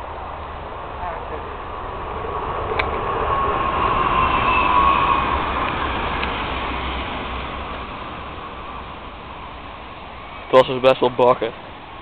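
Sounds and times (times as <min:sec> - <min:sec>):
smoke bomb burning with rushing hiss: 0:00.0 - 0:10.5
faint whistle: 0:03.9 - 0:05.4.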